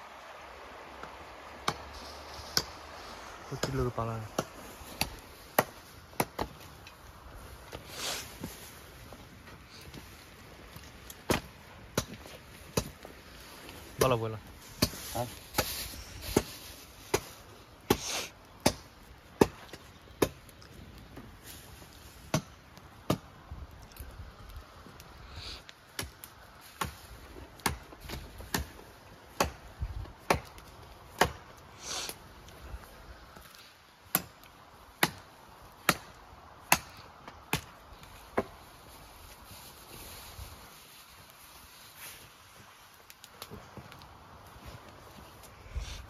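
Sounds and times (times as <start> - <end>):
wood being chopped: 1.0 - 2.8, 3.6 - 6.9, 10.8 - 13.2, 13.9 - 21.3, 22.3 - 23.3, 25.9 - 32.2, 34.1 - 38.6.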